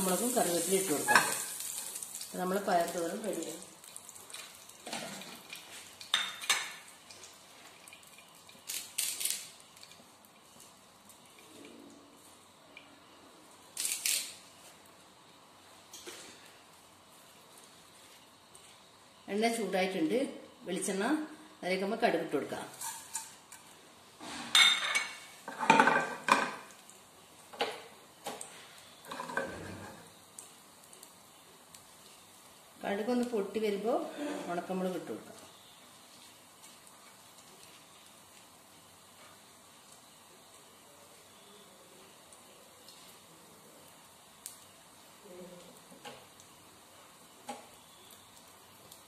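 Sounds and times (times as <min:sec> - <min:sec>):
faint sizzle: 0:00.0 - 0:49.0
seeds popping and crackling in oil: 0:00.1 - 0:11.5, 0:13.7 - 0:14.6, 0:35.2 - 0:38.8, 0:43.9 - 0:49.0.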